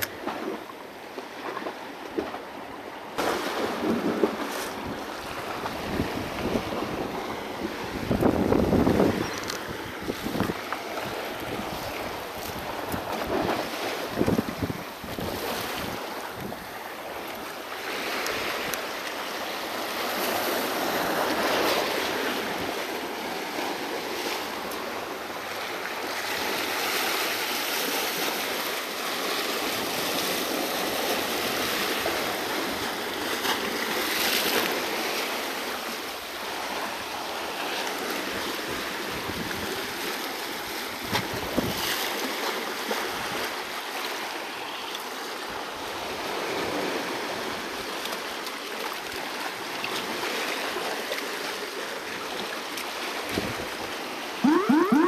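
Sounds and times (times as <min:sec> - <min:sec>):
waves washing over rocks: 0:00.0 - 0:54.5.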